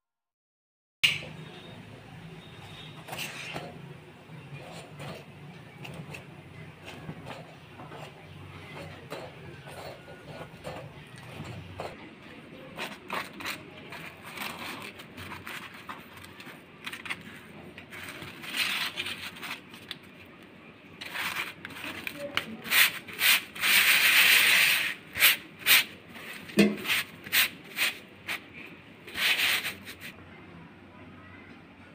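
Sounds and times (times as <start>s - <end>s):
flatbreads rubbing on steel plate: 4.4s - 12.0s, 21.0s - 28.5s, 29.1s - 30.2s
spoon spreading fat on flatbread: 12.6s - 19.9s.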